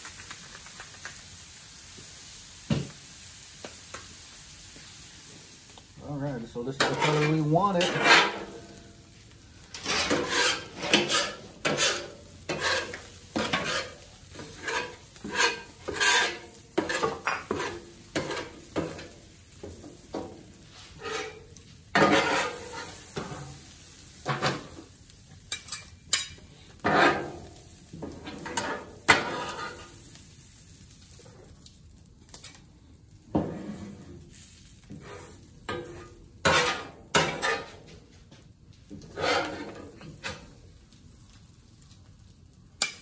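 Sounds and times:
corn sizzling: 0:00.0 - 0:43.0
metal spatulas scraping griddle: 0:06.7 - 0:08.8, 0:09.6 - 0:23.6, 0:24.2 - 0:24.8, 0:25.5 - 0:30.0, 0:33.3 - 0:37.9, 0:39.0 - 0:40.6.

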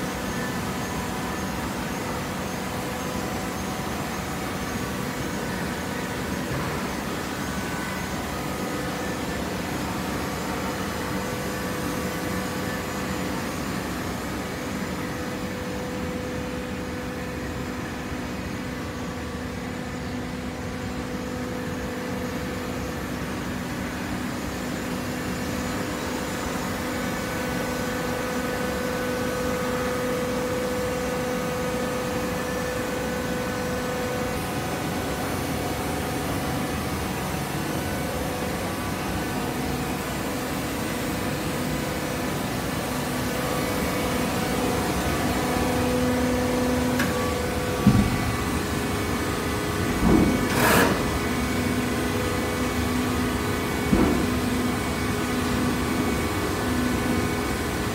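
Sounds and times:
hydraulic pump whine: 0:00.0 - 0:57.9
machine hum: 0:00.0 - 0:57.9.

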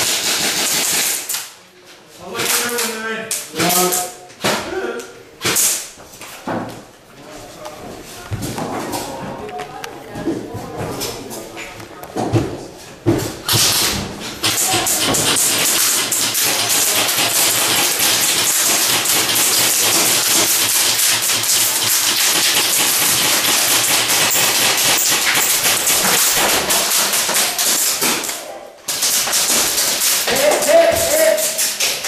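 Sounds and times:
airsoft guns firing full-auto: 0:00.0 - 0:01.4, 0:13.7 - 0:28.1.

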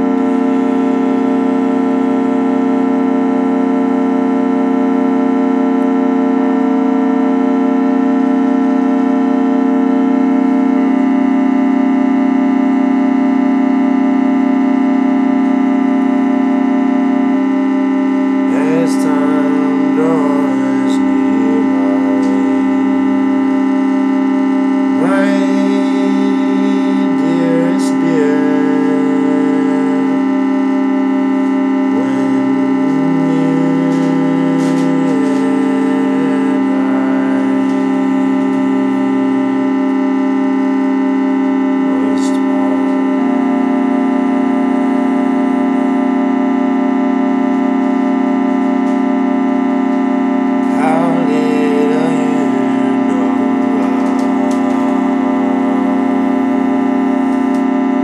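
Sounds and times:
electric organ droning chords: 0:00.0 - 0:58.0
wavering sliding tone: 0:18.4 - 0:39.3.

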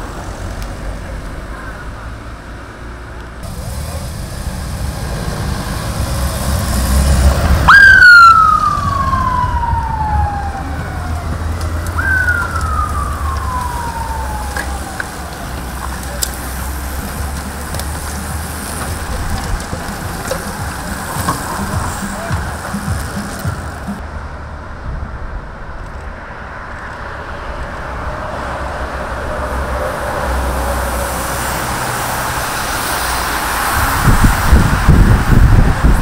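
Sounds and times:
low rumble of vehicle engines: 0:00.0 - 0:36.0
siren sliding down in pitch: 0:07.6 - 0:15.5.

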